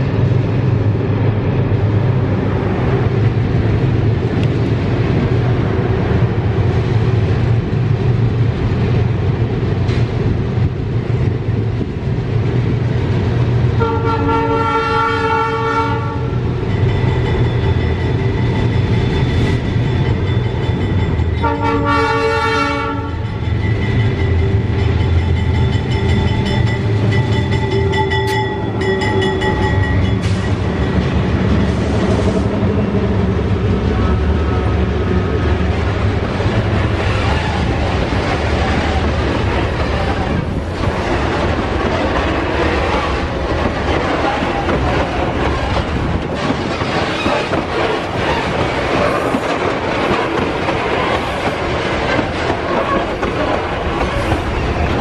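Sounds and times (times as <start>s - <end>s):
diesel locomotive engines rumbling: 0.0s - 55.0s
train horn blast: 13.8s - 16.4s, 21.4s - 23.3s.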